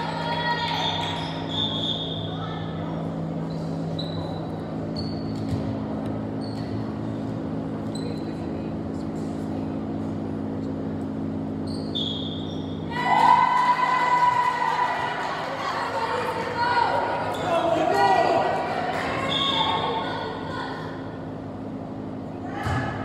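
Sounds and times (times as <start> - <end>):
steady low hum: 0.0 - 23.0
sneakers squeaking on hardwood: 3.5 - 7.0, 11.5 - 12.9.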